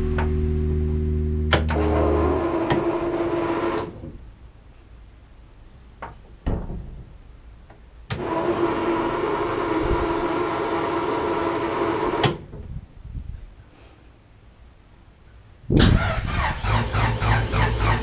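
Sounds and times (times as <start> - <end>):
electric fuel pump whine: 1.5 - 4.0, 8.1 - 12.4.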